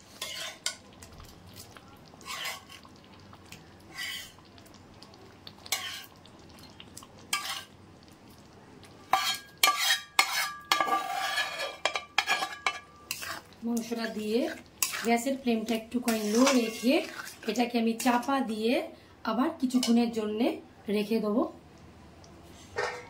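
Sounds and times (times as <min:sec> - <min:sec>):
metal spatula scraping pan: 0:00.0 - 0:00.8, 0:02.2 - 0:02.8, 0:03.9 - 0:04.4, 0:05.7 - 0:06.1, 0:07.3 - 0:07.7, 0:09.1 - 0:18.3.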